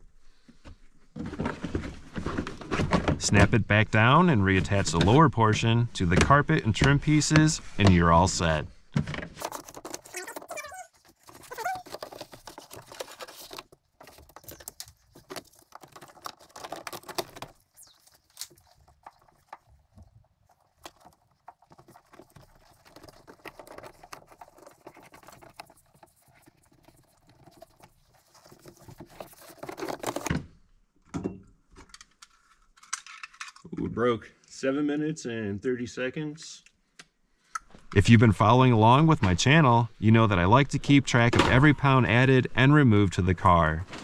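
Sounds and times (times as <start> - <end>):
rustling scraping and clicking: 7.3 - 30.4.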